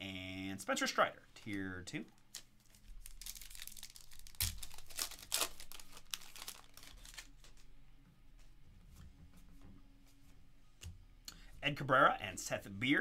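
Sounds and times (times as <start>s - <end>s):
foil wrapper tearing and crinkling: 2.2s - 7.6s.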